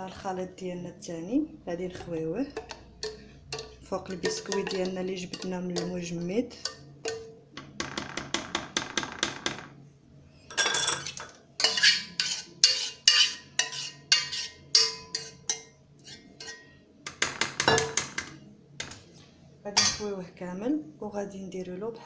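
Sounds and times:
spoon scraping metal saucepan: 0:01.9 - 0:07.4, 0:10.5 - 0:16.8.

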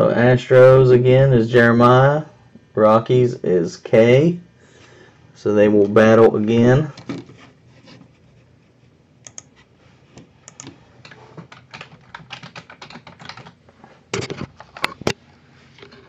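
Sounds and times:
typing on computer keyboard: 0:10.5 - 0:13.6.

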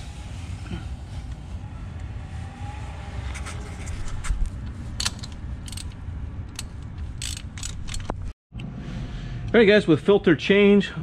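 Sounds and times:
ratchet metallic clicks and taps: 0:05.0 - 0:08.2.

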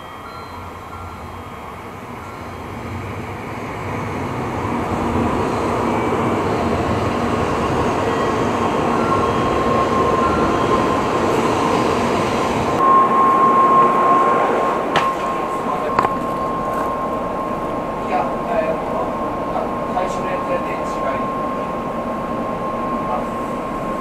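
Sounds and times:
train rumbling and rushing: 0:00.0 - 0:24.0
steady high tone: 0:07.6 - 0:24.0.

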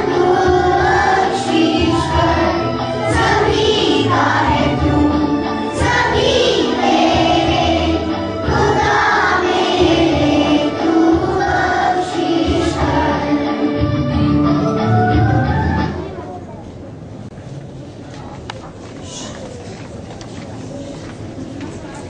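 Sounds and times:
girls choir singing: 0:00.0 - 0:16.0.

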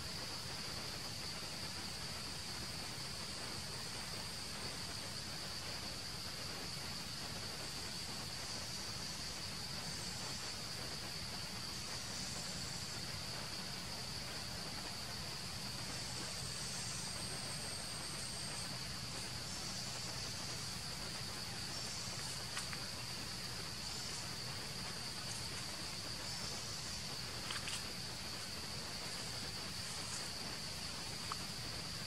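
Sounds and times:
faint low hum: 0:00.0 - 0:32.0
insects droning: 0:00.0 - 0:32.0.

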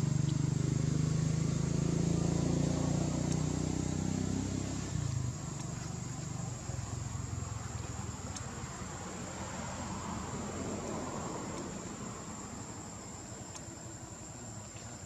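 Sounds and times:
vehicle engine running: 0:00.0 - 0:10.6.

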